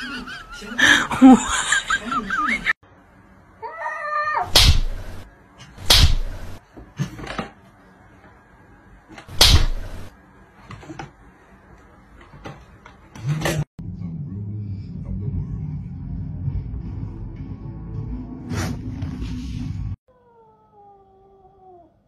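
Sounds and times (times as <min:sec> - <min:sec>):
cat yowling: 0:03.6 - 0:04.6.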